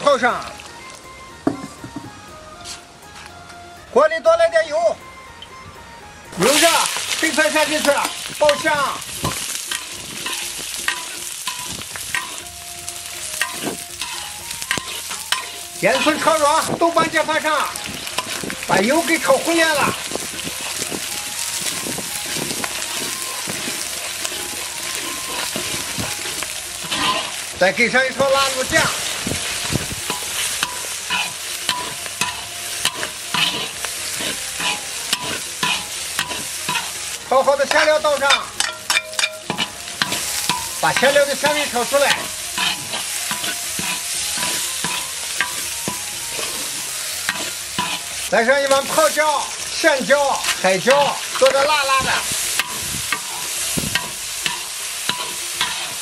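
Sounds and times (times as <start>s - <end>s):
food sizzling in hot oil: 0.0s - 1.8s, 6.3s - 56.0s
stirring clicks and scrapes on pan: 7.0s - 12.5s, 13.4s - 16.7s, 21.6s - 27.5s, 30.0s - 36.9s, 37.6s - 49.2s.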